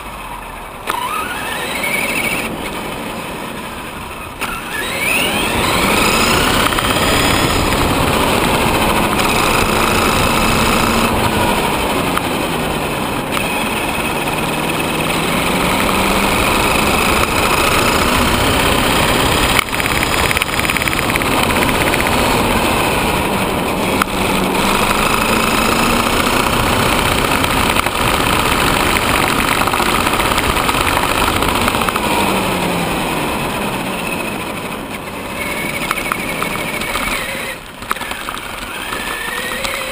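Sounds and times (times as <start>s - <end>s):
electric motor whining: 0.8s - 39.9s
tyre rumble on asphalt: 24.6s - 32.4s.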